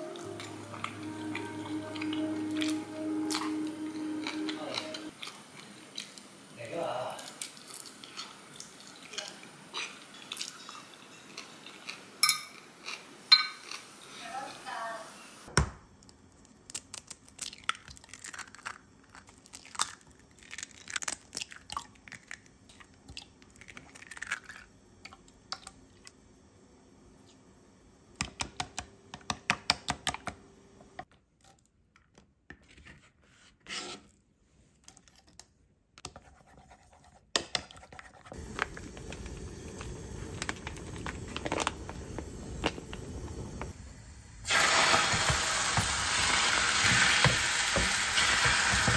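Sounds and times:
food sizzling in a pan: 0:38.4 - 0:48.9.

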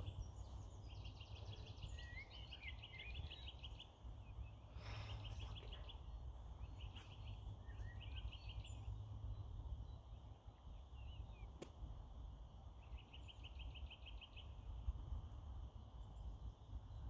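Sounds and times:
songbird trilling: 0:00.0 - 0:03.9
wind rumbling on microphone: 0:05.2 - 0:17.0.

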